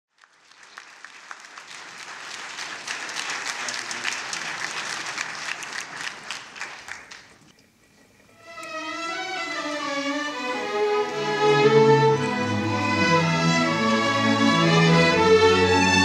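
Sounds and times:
audience applauding: 0.1s - 7.5s.

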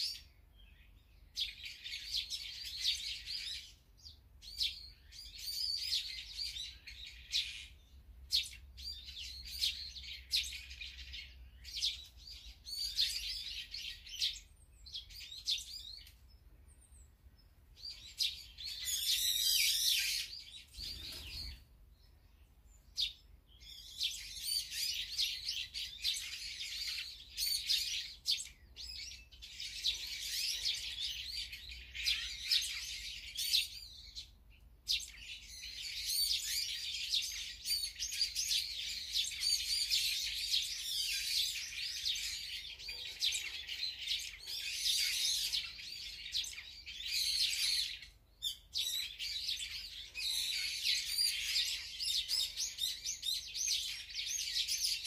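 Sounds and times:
small birds chirping and twittering: 0.0s - 55.0s.

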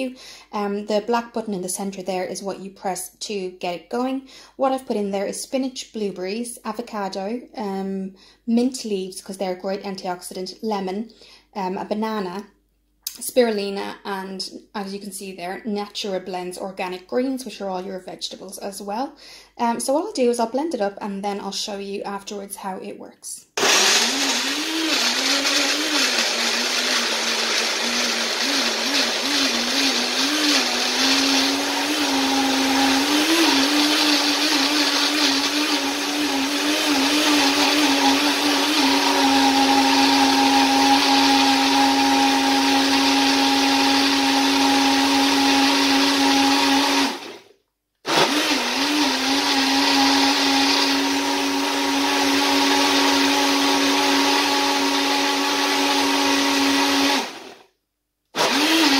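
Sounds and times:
blender motor running: 23.6s - 47.5s, 48.1s - 57.7s, 58.4s - 58.9s.

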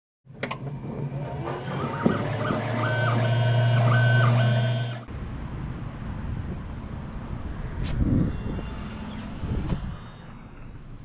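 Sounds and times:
click: 0.4s - 0.6s
stepper motors whining: 0.4s - 5.1s.

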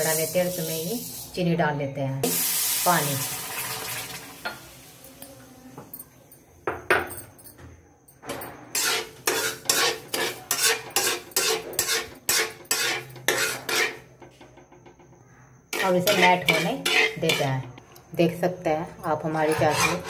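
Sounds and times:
metal spoon scraping pan: 8.7s - 14.4s, 15.7s - 17.8s, 19.0s - 20.0s.

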